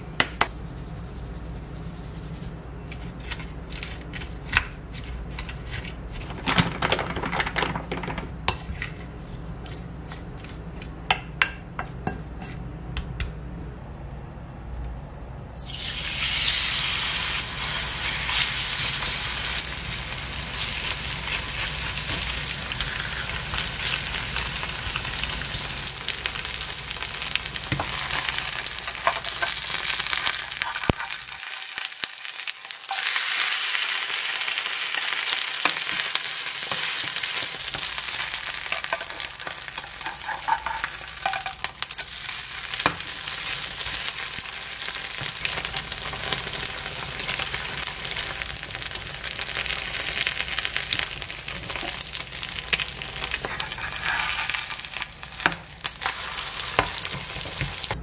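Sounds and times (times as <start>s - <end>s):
batter sizzling in hot oil: 15.6s - 58.0s.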